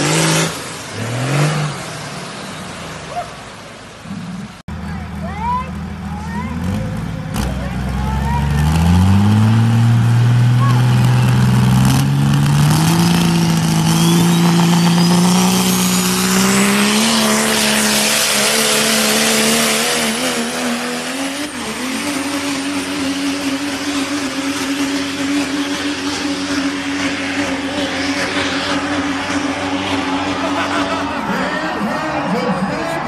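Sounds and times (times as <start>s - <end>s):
diesel truck engine at full throttle: 0.0s - 33.0s
thin high whistle: 13.4s - 16.0s.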